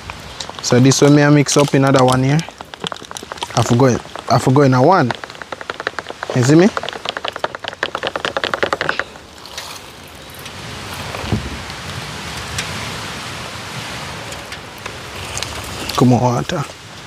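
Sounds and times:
steady rushing hiss: 0:00.0 - 0:17.0
rapid scraping clicks from mixing: 0:00.4 - 0:09.2.

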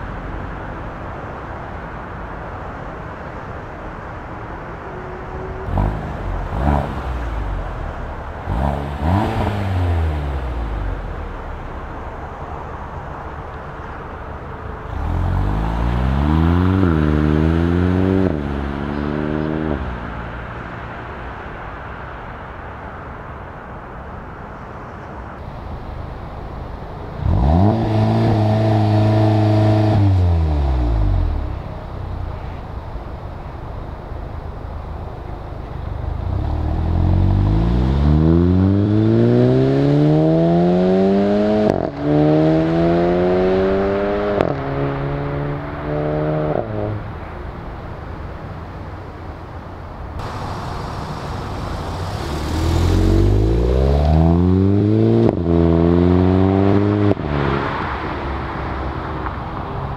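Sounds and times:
car engine revving and accelerating: 0:05.6 - 0:11.4, 0:14.8 - 0:20.3, 0:27.1 - 0:31.6, 0:36.1 - 0:47.1, 0:50.2 - 0:59.0.

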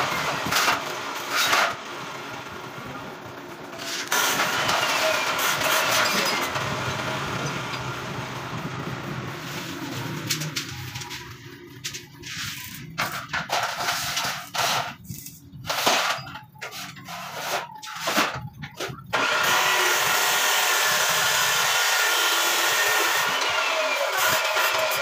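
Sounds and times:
arc welding crackle: 0:23.9 - 0:25.0.

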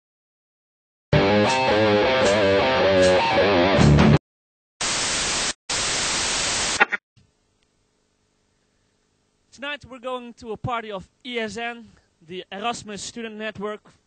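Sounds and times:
tv static hiss: 0:04.8 - 0:07.0.

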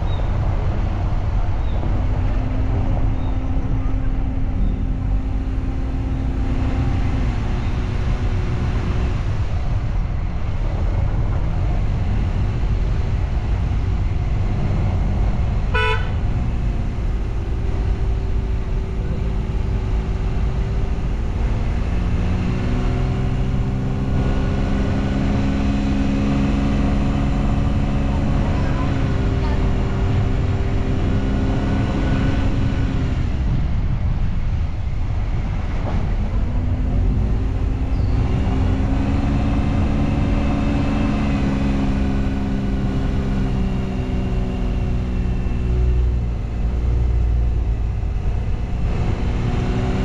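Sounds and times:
motorcycle engine rumbling: 0:00.0 - 0:50.0
wind noise: 0:00.0 - 0:50.0
vehicle horn toot: 0:15.7 - 0:16.2.

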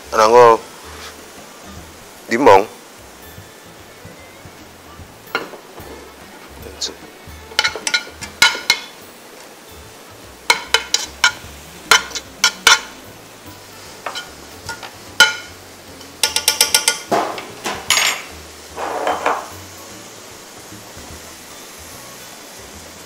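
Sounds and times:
utensils clinking on pan and dishes: 0:05.3 - 0:09.8, 0:10.4 - 0:19.7.

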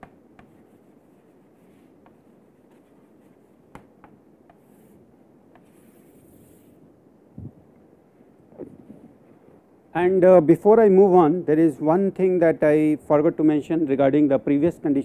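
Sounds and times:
chalk tapping and scratching: 0:00.0 - 0:06.8.

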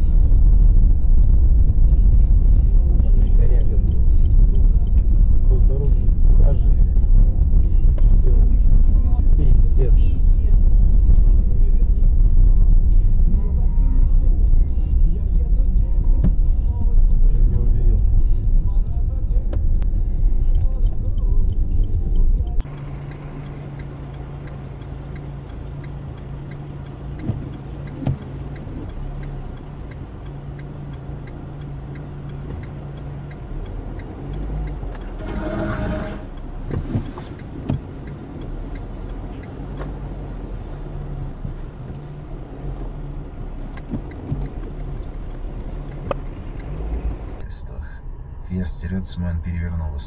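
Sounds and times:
loud low rumble: 0:00.0 - 0:23.7, 0:40.0 - 0:50.0
engine and road hum: 0:00.0 - 0:50.0.

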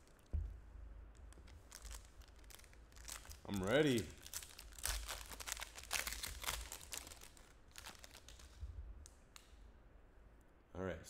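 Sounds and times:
foil wrapper crinkling and tearing: 0:01.1 - 0:08.6.

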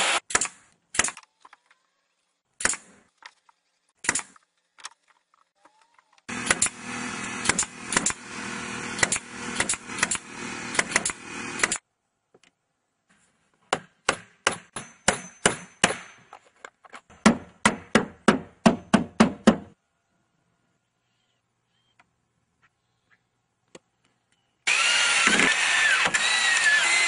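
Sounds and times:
nails hammered into wood: 0:13.7 - 0:16.2, 0:17.2 - 0:19.8.

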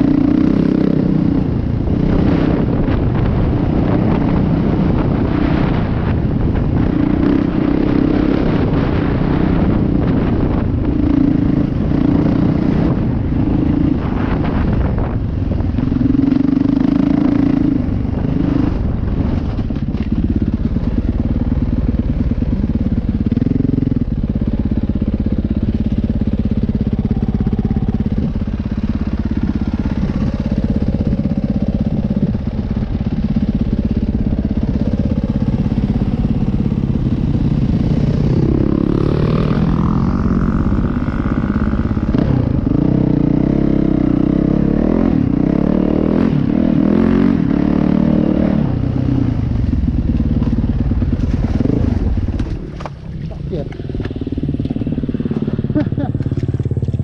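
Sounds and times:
dirt bike engine revving: 0:23.1 - 0:57.0.

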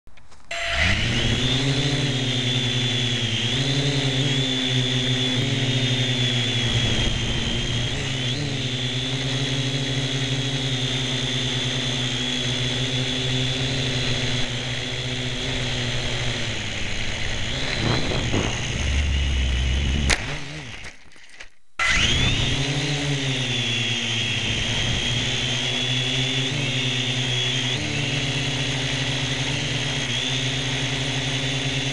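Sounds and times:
drone propellers whining: 0:00.4 - 0:31.9
low rumble: 0:17.2 - 0:20.2.

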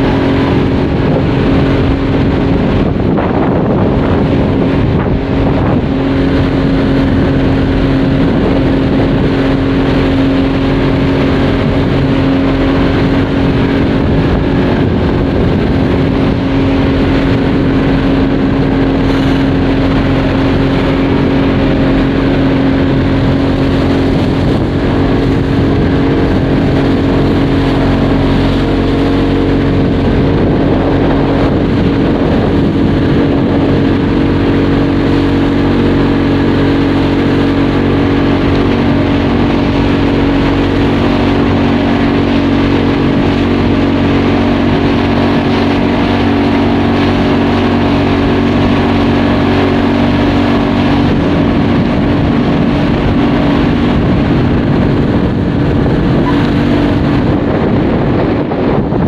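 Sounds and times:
motorboat engine humming: 0:00.0 - 0:59.0
water rushing past hull: 0:00.0 - 0:59.0.

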